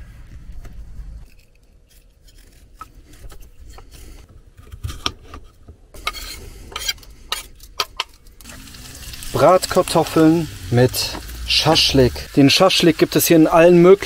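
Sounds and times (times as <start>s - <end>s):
knife scraping potatoes: 1.2s - 7.8s
potato pieces scraped into pan: 6.0s - 7.7s.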